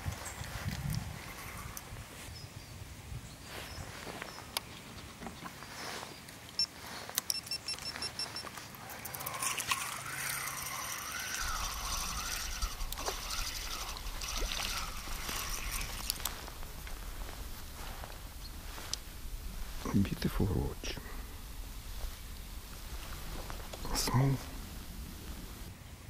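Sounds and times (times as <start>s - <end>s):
fishing reel whirring: 8.7s - 18.1s.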